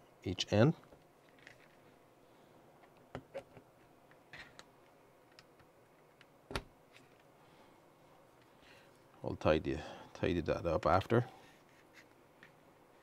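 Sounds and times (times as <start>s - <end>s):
hands handling wires and connectors: 0.9s - 2.0s.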